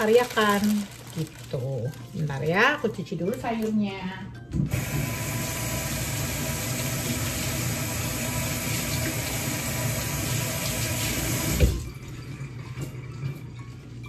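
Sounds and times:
tap water running into sink: 4.7s - 11.9s.

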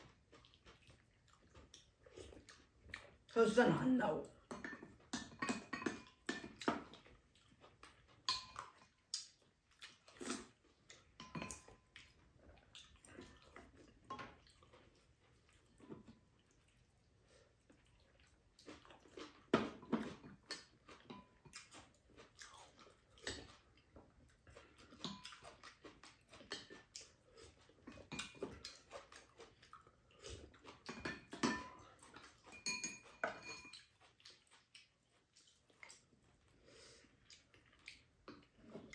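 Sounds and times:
chewing and mouth sounds: 0.0s - 38.9s
utensils clinking on ceramic bowls: 4.4s - 6.7s, 8.2s - 8.8s, 11.2s - 11.8s, 19.8s - 21.5s, 30.9s - 33.9s.

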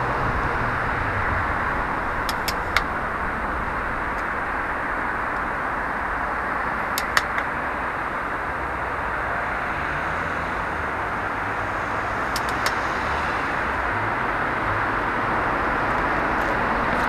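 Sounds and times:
city traffic hum: 0.0s - 17.0s
small sharp clicks: 7.0s - 7.5s, 12.3s - 12.9s.

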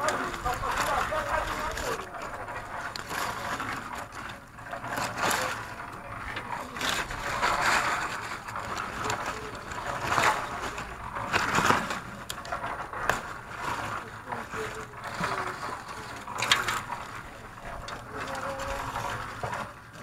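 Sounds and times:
leaves rustling and crackling: 0.0s - 20.0s.

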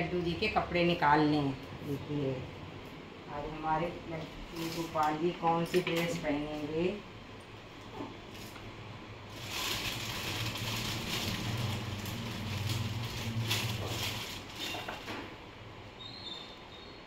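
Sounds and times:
low steady hum: 0.0s - 17.0s
cloth and plastic packets rustling: 9.3s - 15.1s.

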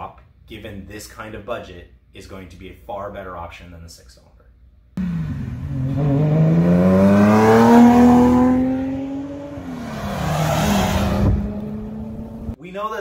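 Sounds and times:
car engines accelerating past: 5.0s - 12.6s.

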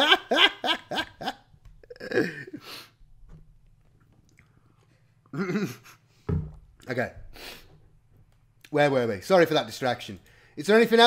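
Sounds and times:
man laughing: 0.0s - 2.8s, 5.3s - 6.0s.

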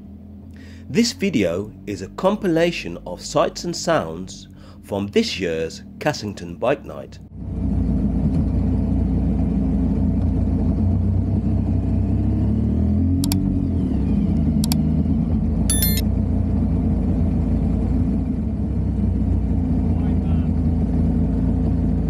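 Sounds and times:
sharp clicks: 13.2s - 13.5s, 14.4s - 14.8s, 15.7s - 16.0s.

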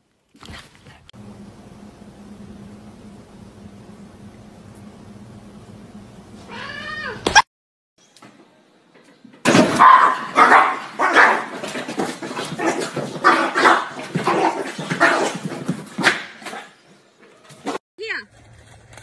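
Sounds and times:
small dog barking: 9.8s - 11.6s, 13.2s - 15.3s.

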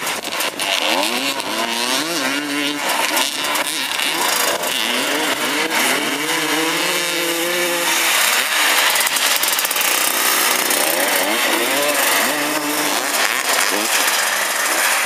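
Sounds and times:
motorcycle engines revving: 0.0s - 15.0s.

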